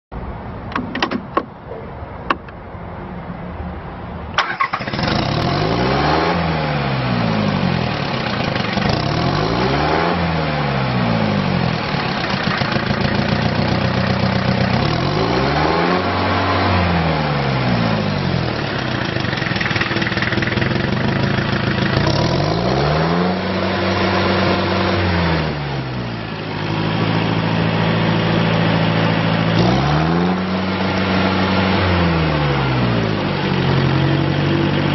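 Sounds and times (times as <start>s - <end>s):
tractor engine clicks: 0.6s - 1.6s, 2.2s - 2.6s
diesel tractor engine revving: 4.4s - 34.9s.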